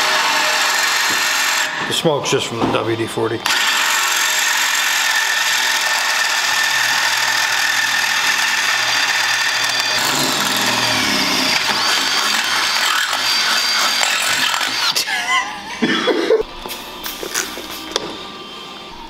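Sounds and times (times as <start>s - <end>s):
power drill boring through steel: 0.0s - 1.9s, 3.4s - 15.6s.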